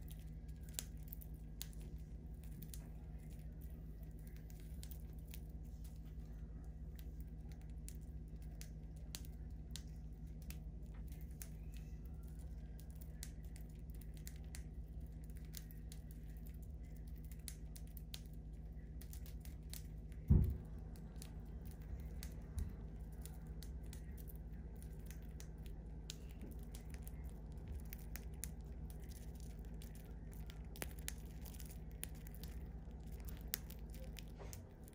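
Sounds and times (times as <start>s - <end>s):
birds cracking seeds: 0.0s - 34.9s
low steady hum: 0.0s - 34.9s
dull thump: 20.3s - 20.7s.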